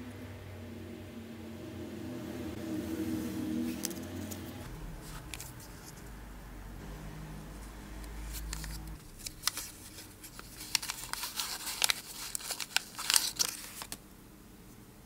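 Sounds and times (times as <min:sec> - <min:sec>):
paper packet crinkling: 0:08.2 - 0:14.0.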